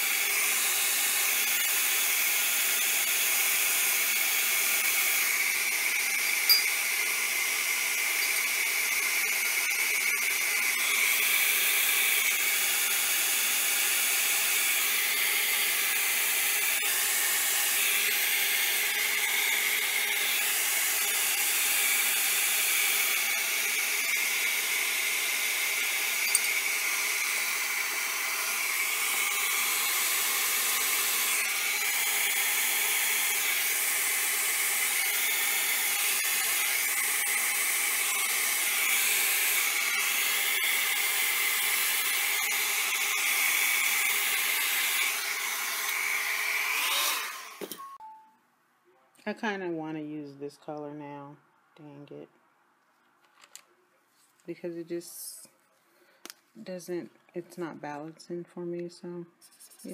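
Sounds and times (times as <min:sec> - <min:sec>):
heat gun blowing hot air: 0:00.0 - 0:47.8.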